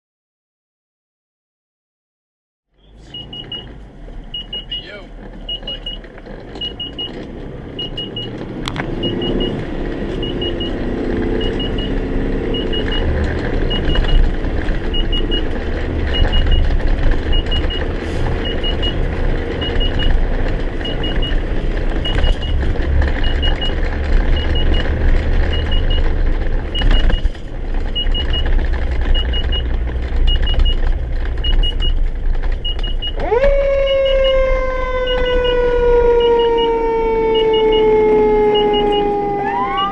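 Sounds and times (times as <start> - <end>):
vehicle engine accelerating: 2.8 - 39.9
warning beep pips: 4.4 - 6.0, 9.0 - 9.6, 11.4 - 12.0, 36.2 - 39.9
siren rising and falling: 6.6 - 16.7, 32.8 - 39.9.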